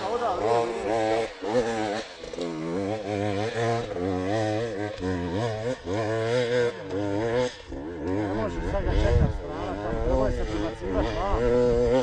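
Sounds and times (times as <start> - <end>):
dirt bike engine revving: 0.0 - 12.0.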